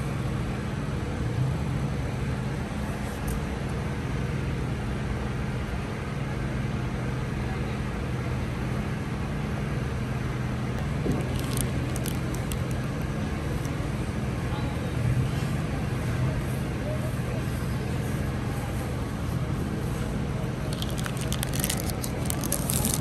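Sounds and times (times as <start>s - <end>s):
low background hum: 0.0s - 23.0s
plastic wrapper crinkling: 11.0s - 13.6s, 20.7s - 23.0s.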